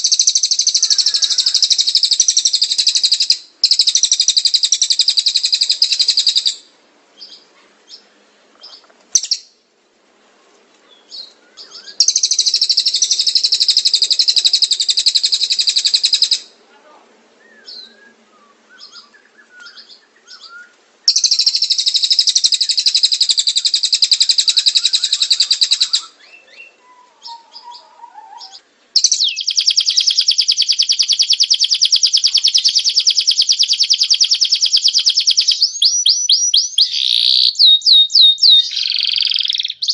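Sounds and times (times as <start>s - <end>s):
bird rapid high trills: 0.0s - 6.5s, 21.1s - 26.2s
bird chirps: 0.0s - 9.6s, 10.9s - 16.6s, 17.4s - 39.9s.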